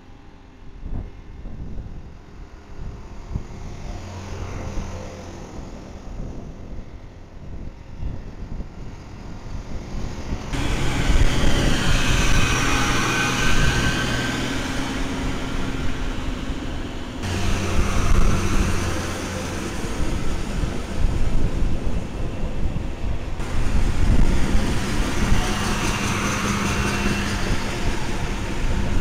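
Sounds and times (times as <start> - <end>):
rail machine engines rumbling: 0.0 - 29.0
higher machine whine: 9.2 - 29.0.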